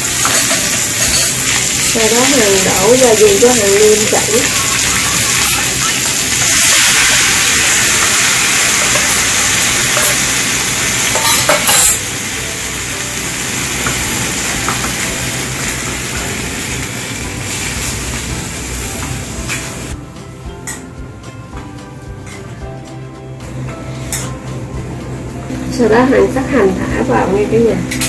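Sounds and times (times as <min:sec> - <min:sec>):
cabbage sizzling in hot pan: 0:00.0 - 0:20.0.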